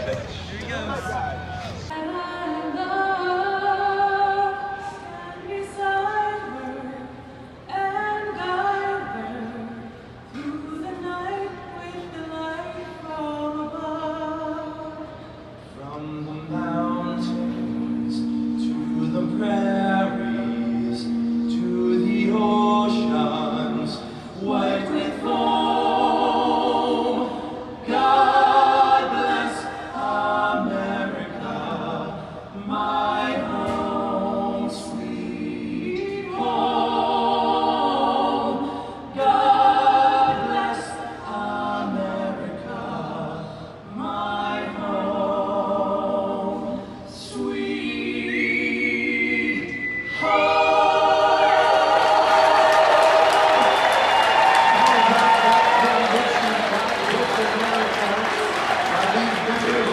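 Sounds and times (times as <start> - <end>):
vocalists singing in harmony: 1.8 - 59.9
thin whistle: 49.5 - 50.9.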